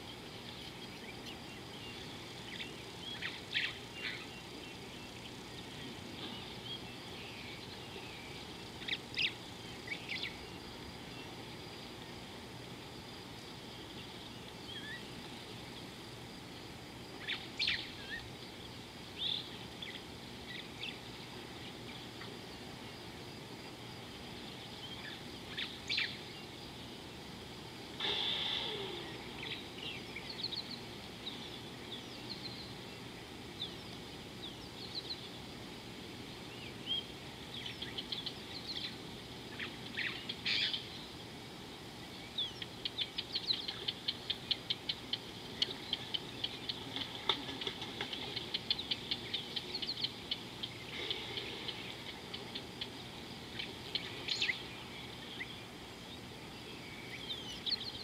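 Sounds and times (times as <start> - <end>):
steady outdoor hiss: 0.0 - 58.0
birds chirping and whistling: 28.0 - 32.7, 39.6 - 41.0
bird long call: 28.0 - 32.8, 39.6 - 40.9.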